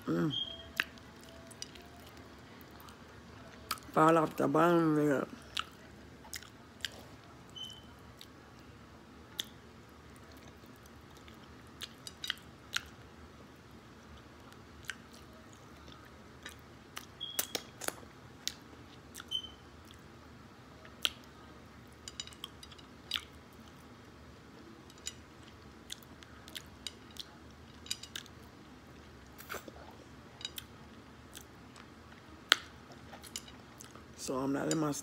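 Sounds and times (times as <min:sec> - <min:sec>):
person chewing and biting: 0:05.5 - 0:07.2, 0:10.2 - 0:13.0, 0:24.9 - 0:27.4
wet mouth clicks and smacks: 0:17.0 - 0:20.0.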